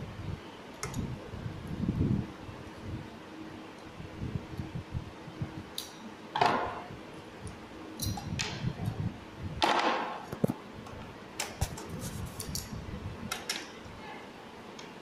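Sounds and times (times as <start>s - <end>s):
rustling scrapes: 11.8s - 12.5s.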